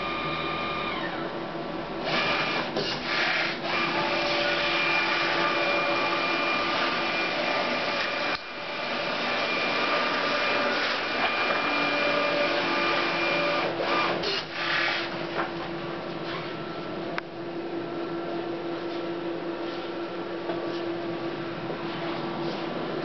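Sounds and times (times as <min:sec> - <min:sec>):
label printer whirring: 0:02.0 - 0:15.5.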